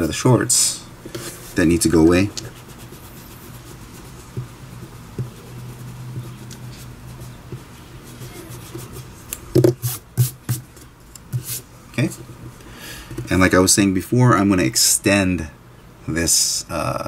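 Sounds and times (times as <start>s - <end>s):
eraser rubbing on paper: 1.2s - 9.2s, 9.8s - 10.6s.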